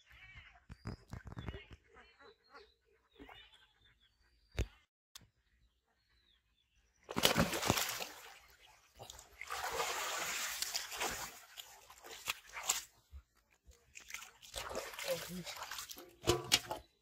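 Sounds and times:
fish flapping on wet mud: 0:07.1 - 0:08.4
water splashing and sloshing: 0:07.1 - 0:17.0.

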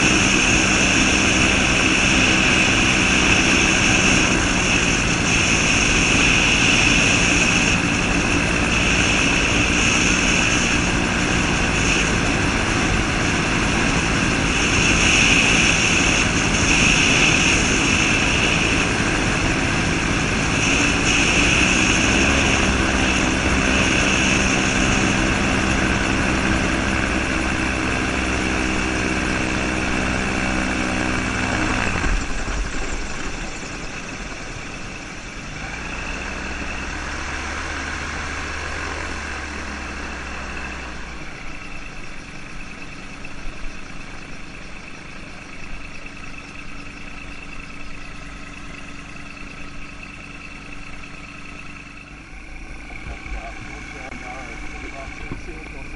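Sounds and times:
aircraft engine and propeller droning: 0:00.0 - 0:55.9
rushing wind: 0:00.0 - 0:55.9.

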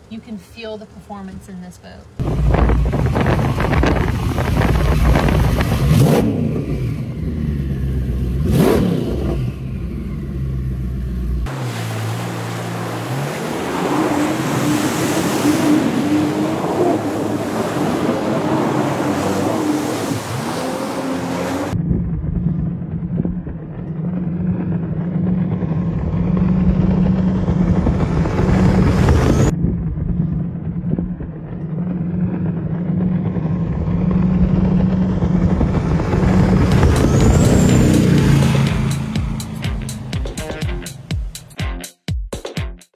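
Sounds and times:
powerboat engine drone: 0:02.1 - 0:41.1
rush of wind and water: 0:02.2 - 0:06.3, 0:11.5 - 0:21.8.

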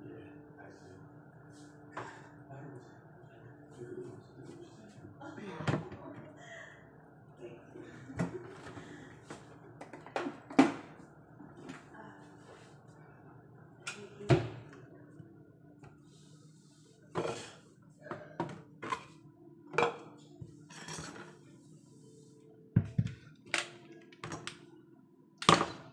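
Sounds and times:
kitchen items clattering on countertop: 0:18.2 - 0:21.4.

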